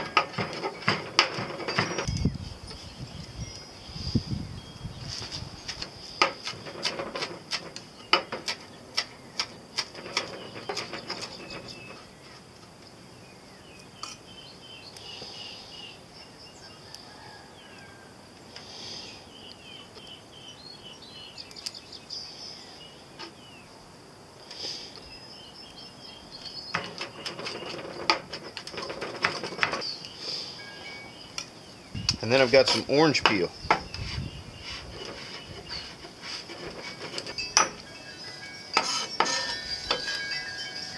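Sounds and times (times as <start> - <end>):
bird-like chirps: 29.8 - 39.2.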